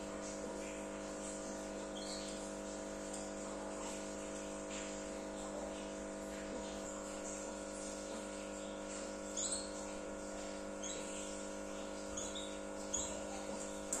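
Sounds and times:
canaries chirping: 1.9s - 2.4s, 9.4s - 9.8s, 10.8s - 11.4s, 12.0s - 14.0s.

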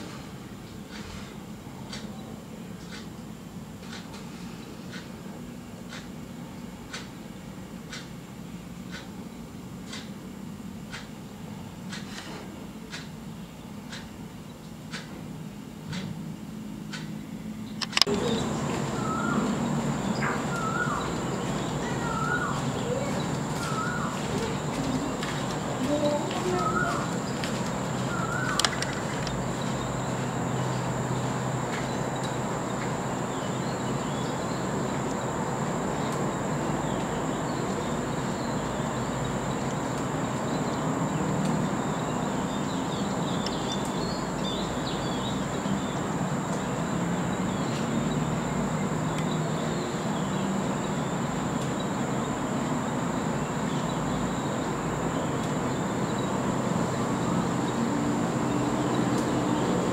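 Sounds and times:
low hum and hiss: 0.0s - 59.9s
faint high chirps: 18.1s - 46.0s.

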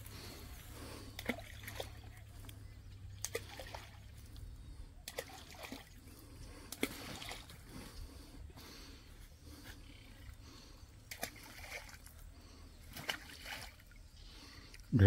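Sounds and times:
bait splashing into water: 1.2s - 2.4s, 3.2s - 4.1s, 5.0s - 6.0s.

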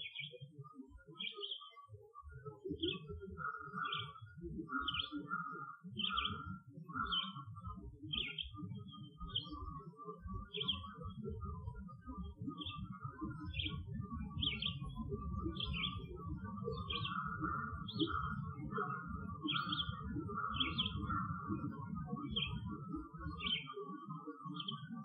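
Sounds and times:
birds twittering: 2.8s - 7.4s, 8.1s - 9.7s, 12.6s - 23.8s.

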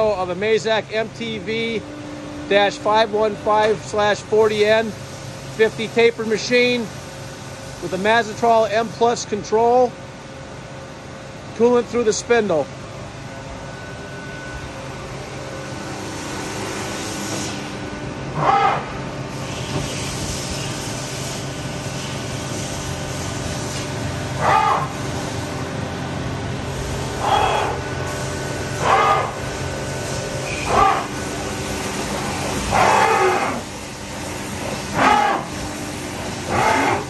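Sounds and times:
machining center running: 0.0s - 37.0s
coolant spraying hiss: 3.8s - 9.2s, 16.0s - 17.8s, 19.3s - 24.4s, 25.0s - 25.7s, 26.6s - 37.0s.

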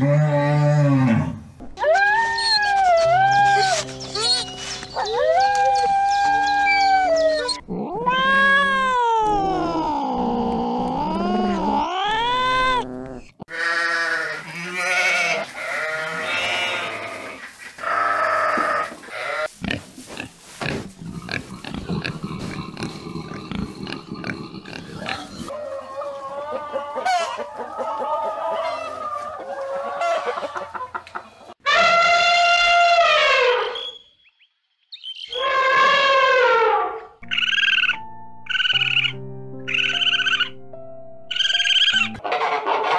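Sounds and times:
pigs squealing and grunting: 5.8s - 30.4s, 35.3s - 37.8s
cat meowing: 7.8s - 9.7s
hen clucking: 16.3s - 31.5s, 37.2s - 40.5s, 41.3s - 42.9s.

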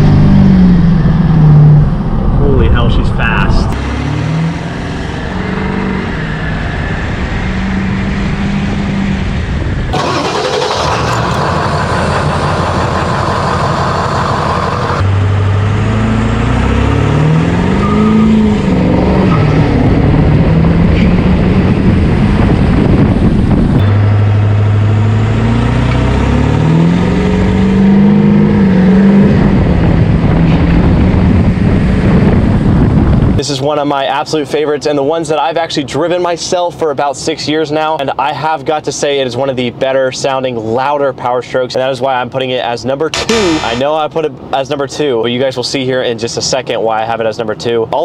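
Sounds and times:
diesel engine accelerating hard: 0.0s - 33.4s.

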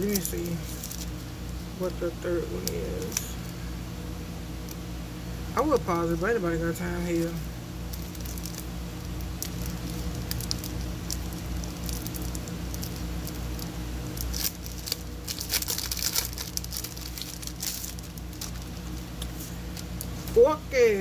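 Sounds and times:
plastic packaging crinkling: 0.0s - 1.7s, 7.0s - 20.4s
steady low hum: 0.0s - 21.0s.

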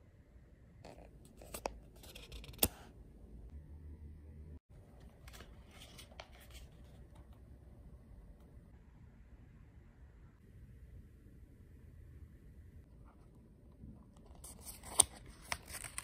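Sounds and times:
book pages rustling: 4.9s - 7.3s, 14.2s - 16.0s.

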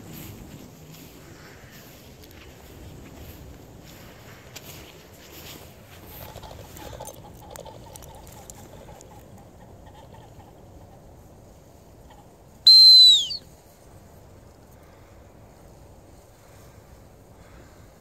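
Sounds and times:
high whistle blast: 12.6s - 13.5s.

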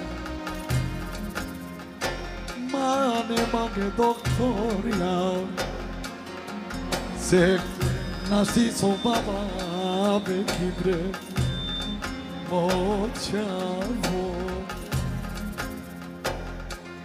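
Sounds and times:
ornamented lead melody: 0.0s - 17.0s
low drum beat: 3.4s - 6.0s
bass line: 3.4s - 16.8s.

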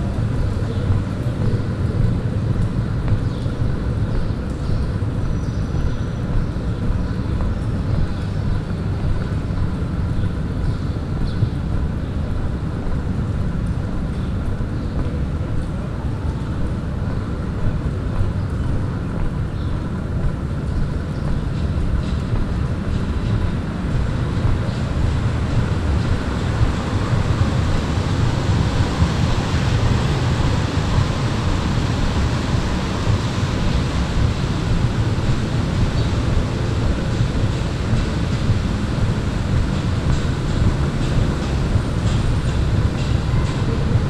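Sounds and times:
wind rumble on microphone: 0.0s - 44.0s
rain hiss: 23.5s - 44.0s.

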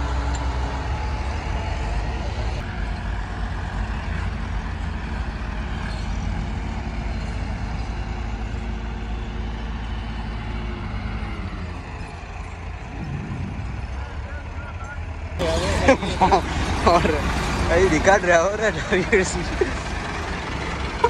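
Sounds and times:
diesel tractor engines rumbling: 0.0s - 21.0s.

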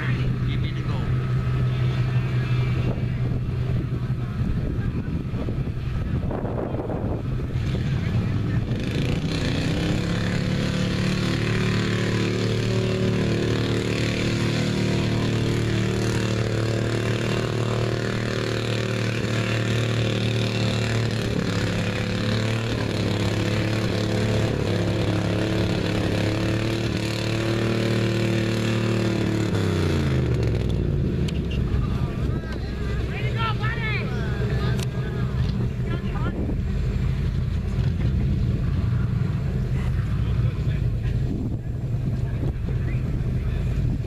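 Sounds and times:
pickup truck engine revving: 0.0s - 44.0s.

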